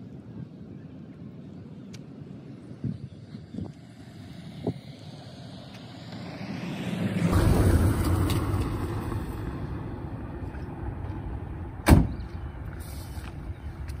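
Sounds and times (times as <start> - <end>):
road vehicle passing: 2.2 - 14.0
sharp thump: 11.8 - 12.2.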